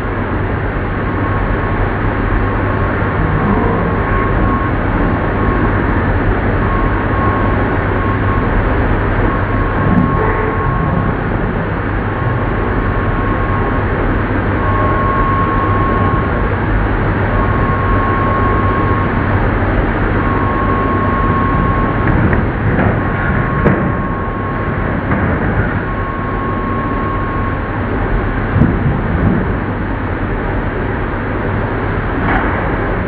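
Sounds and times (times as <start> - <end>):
metal lathe running: 1.2 - 27.6
high tone: 2.5 - 16.5.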